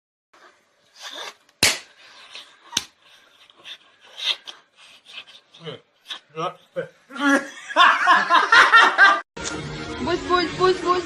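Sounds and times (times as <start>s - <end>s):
sharp smacks: 1.6s - 2.0s.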